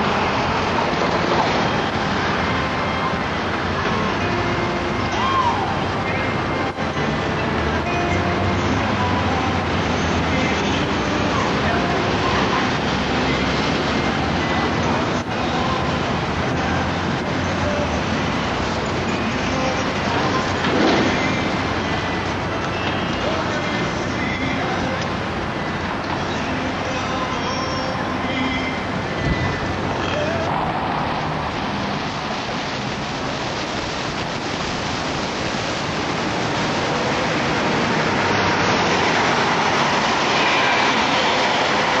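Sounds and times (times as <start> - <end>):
car approaching: 0.0 - 42.0
outdoor city noise: 0.0 - 42.0
tyres hissing on wet road: 0.0 - 42.0
faint voices: 5.0 - 31.1.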